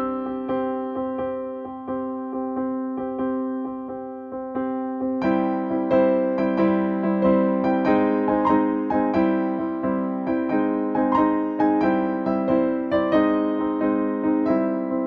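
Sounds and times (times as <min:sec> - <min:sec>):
electric piano music: 0:00.0 - 0:15.0.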